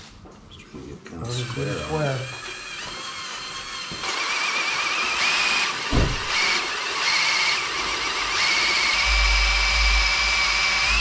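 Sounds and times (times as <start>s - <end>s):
drill bit squealing in metal: 1.2s - 9.8s
low thump: 5.9s - 6.4s.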